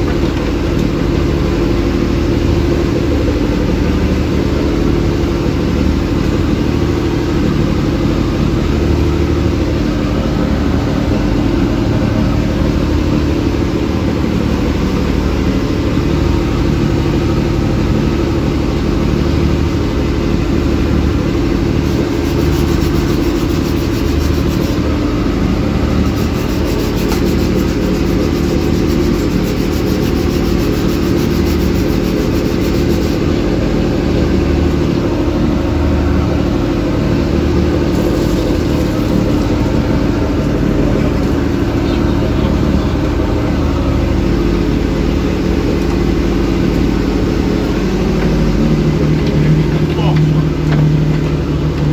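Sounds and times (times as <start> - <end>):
boat engine droning: 0.0 - 51.9
water rushing along hull: 10.4 - 51.9.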